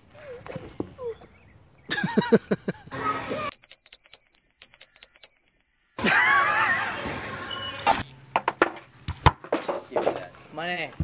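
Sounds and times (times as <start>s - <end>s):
high bell-like jingling: 3.5s - 6.2s.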